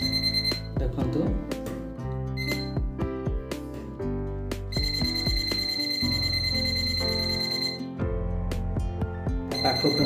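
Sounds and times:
background music: 0.0 - 10.0
voltage tester high beep: 2.4 - 2.8.

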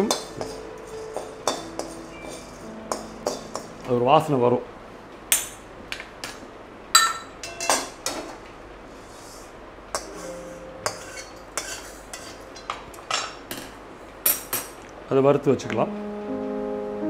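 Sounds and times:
metal wok and utensils clinking: 0.0 - 3.9, 7.0 - 8.4, 9.9 - 14.8.

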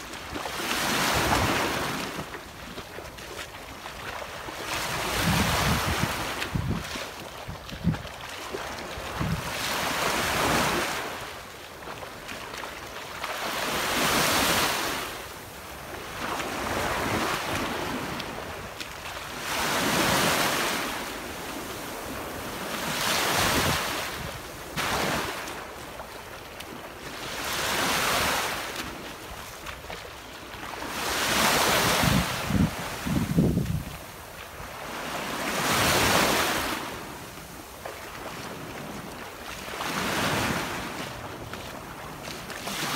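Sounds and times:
small waves washing ashore: 0.0 - 42.9
wind rumbling on microphone: 3.8 - 11.2, 21.0 - 25.6, 30.8 - 35.0.

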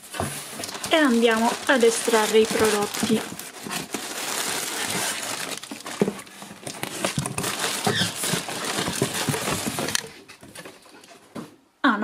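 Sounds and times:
plastic bags crinkling: 0.0 - 11.1
cardboard flaps rustling and scraping: 0.0 - 11.6
faint squeak: 7.7 - 8.3.

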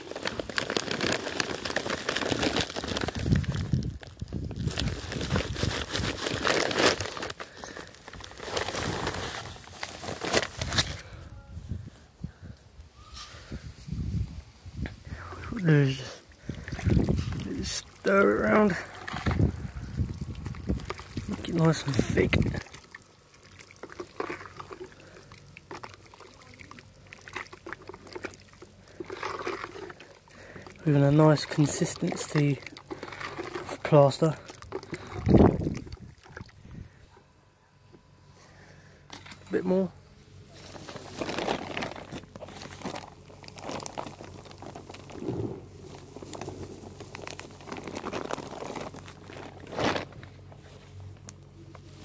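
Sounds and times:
plaster sloshing in a plastic bucket: 22.3 - 30.8, 31.4 - 36.6.

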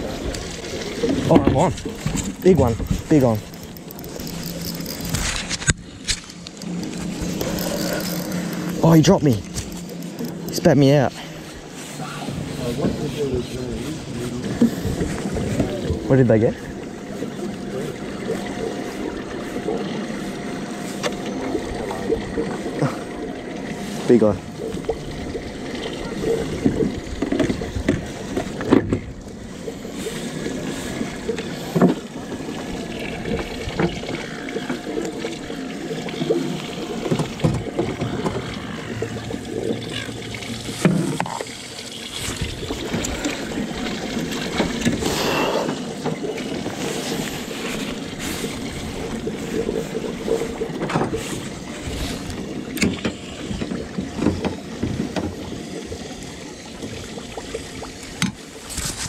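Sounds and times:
water lapping against boat hull: 0.0 - 59.0
knocks and clicks of fishing gear: 1.0 - 10.6, 26.6 - 29.1, 52.2 - 55.4, 58.2 - 58.4.

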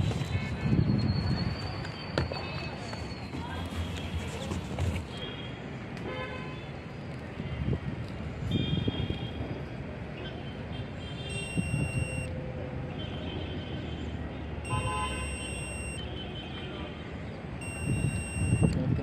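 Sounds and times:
wind rumble on microphone: 0.0 - 1.8, 17.8 - 19.0
high electronic beeps: 11.3 - 12.3, 14.6 - 16.0, 17.6 - 18.8.

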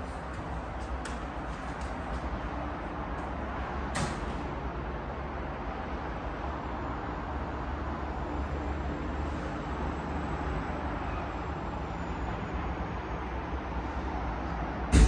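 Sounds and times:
room ambience rumble and hiss: 0.0 - 5.6.

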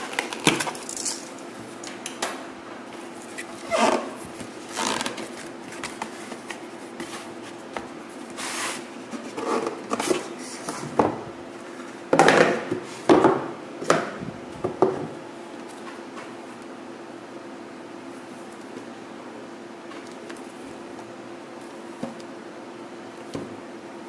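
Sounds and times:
cardboard scraping and rustling: 3.1 - 11.0.

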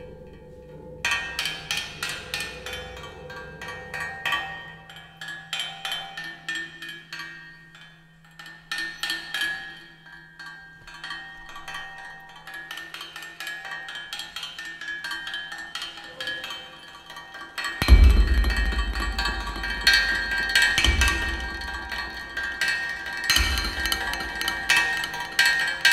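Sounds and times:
steady low hum: 17.8 - 25.6.

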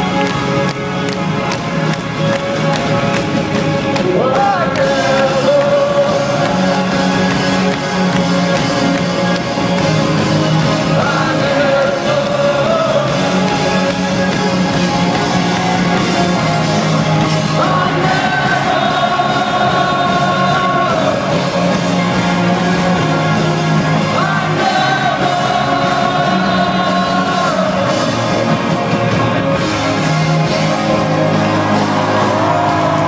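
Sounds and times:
live band playing: 0.0 - 33.0
person singing: 4.0 - 7.4, 10.8 - 13.8, 17.4 - 21.7, 24.0 - 28.3.

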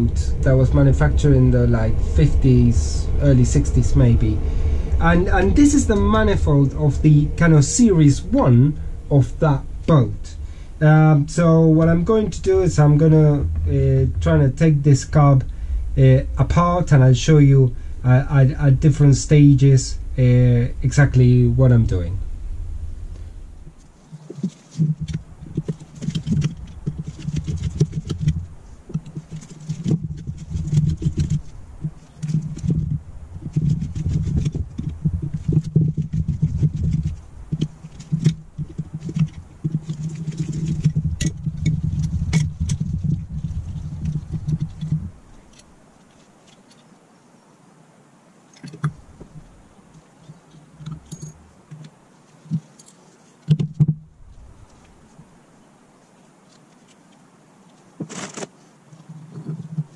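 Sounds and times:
low handling noise: 0.0 - 46.9, 48.6 - 55.5
metal clicking and scraping: 24.2 - 46.9.

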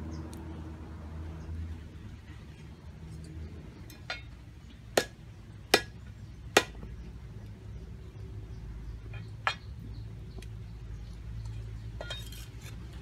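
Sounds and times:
cleaver chopping on wooden board: 5.0 - 6.0, 6.6 - 6.8.

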